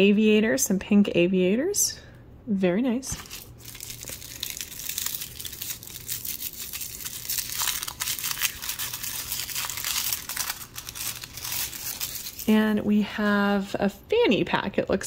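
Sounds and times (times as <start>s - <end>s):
wrapper crinkling: 3.1s - 12.8s.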